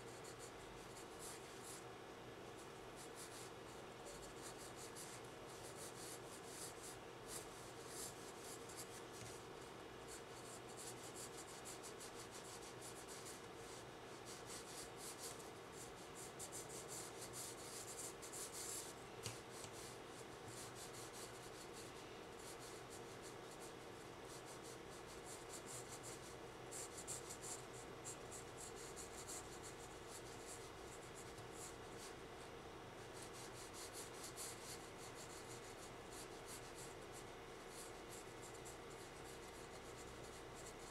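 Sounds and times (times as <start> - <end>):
pencil scratching on paper: 4.2 - 9.5, 10.1 - 13.4, 14.2 - 23.6, 33.2 - 36.9, 37.7 - 40.8.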